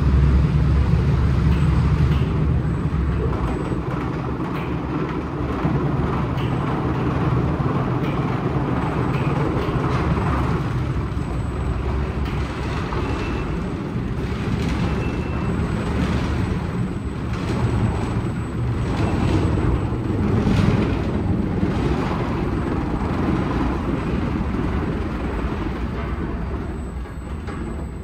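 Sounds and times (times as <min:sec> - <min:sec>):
car wash machinery running: 0:00.0 - 0:28.0.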